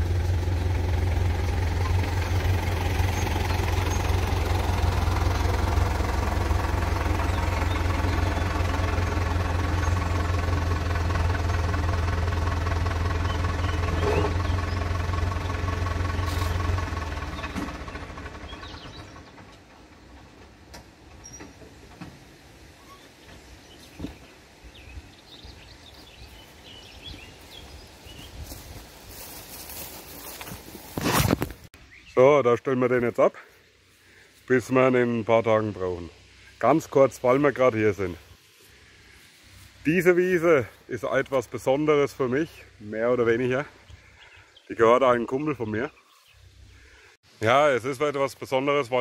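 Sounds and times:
tractor diesel engine humming: 0.0s - 22.3s, 33.6s - 47.2s.

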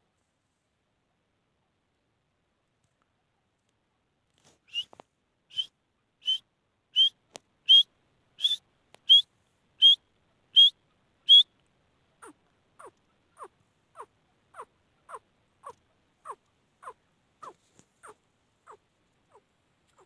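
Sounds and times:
bird whistled calls: 4.7s - 4.9s, 5.5s - 6.4s, 7.0s - 9.2s, 9.8s - 10.0s, 10.6s - 11.5s.

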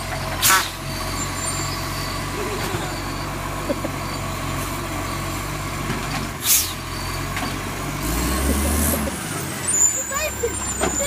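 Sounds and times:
truck diesel engine running: 0.0s - 11.0s
air brake hiss: 6.4s - 6.8s.

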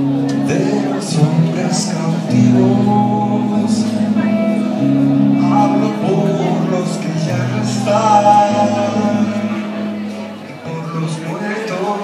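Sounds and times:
acoustic guitar music: 0.0s - 12.0s.

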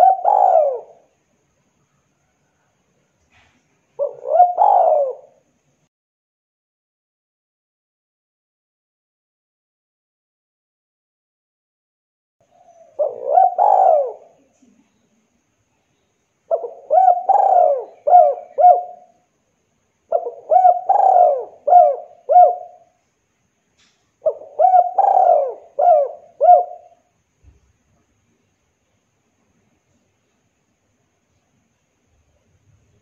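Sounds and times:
dove cooing: 0.0s - 1.1s, 3.3s - 5.4s, 12.5s - 14.7s, 16.5s - 19.2s, 20.1s - 23.0s, 24.2s - 27.1s.

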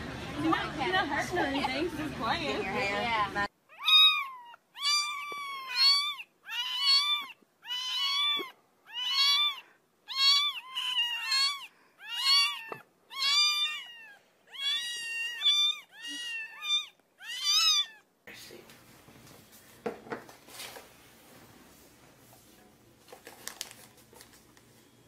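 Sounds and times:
kittens mewing: 3.7s - 18.1s.

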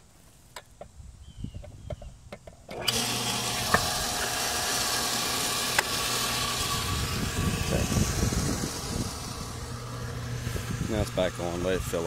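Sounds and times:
water pump humming: 2.7s - 12.0s.

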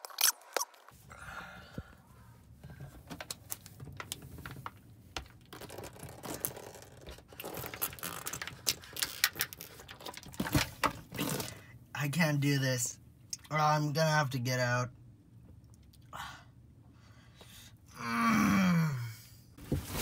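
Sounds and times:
plastic bottle crinkling: 3.2s - 11.6s.

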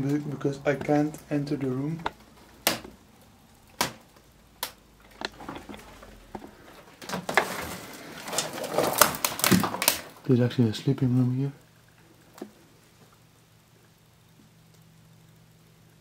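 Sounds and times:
crackling among dry twigs: 0.0s - 14.0s
footsteps on debris: 5.1s - 10.2s.

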